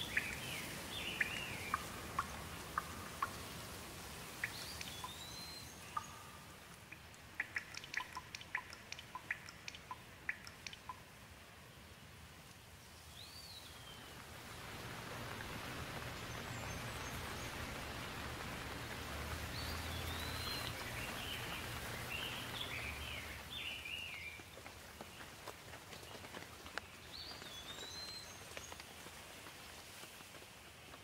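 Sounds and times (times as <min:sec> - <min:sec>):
bird chirping: 0:00.0 - 0:03.6, 0:04.4 - 0:11.1, 0:15.8 - 0:24.5
steady rain falling: 0:00.0 - 0:31.0.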